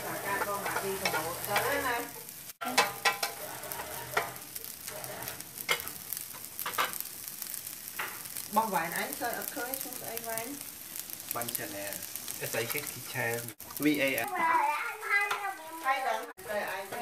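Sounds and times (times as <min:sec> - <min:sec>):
wooden spatula scraping and knocking: 0:00.0 - 0:07.0
rice sizzling in a pan: 0:00.0 - 0:17.0.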